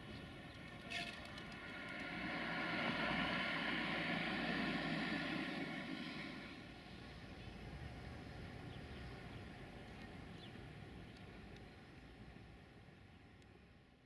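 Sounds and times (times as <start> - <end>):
vehicle passing by: 1.2 - 6.9.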